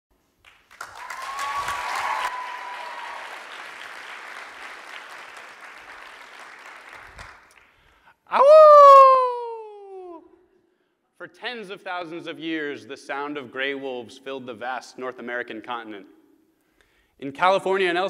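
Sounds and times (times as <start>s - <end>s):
audience applauding and cheering: 0.4s - 9.2s.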